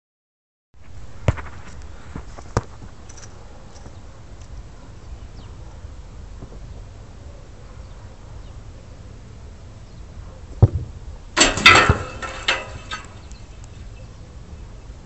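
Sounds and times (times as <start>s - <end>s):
sharp knocks: 10.6s - 13.3s.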